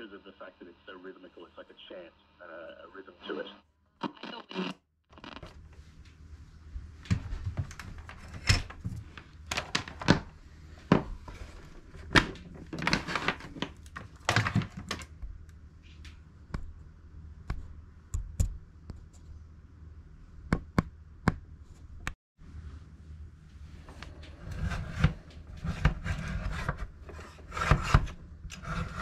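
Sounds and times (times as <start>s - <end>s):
radio speaker popping and crackling: 0.0s - 5.6s
steady low hum: 5.5s - 9.6s, 15.0s - 29.0s.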